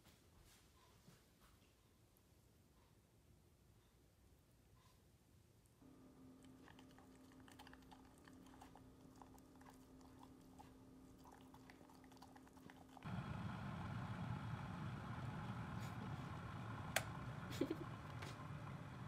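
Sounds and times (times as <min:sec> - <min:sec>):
steady low hum: 0:05.7 - 0:19.0
dog crunching food in metal bowl: 0:06.4 - 0:13.1.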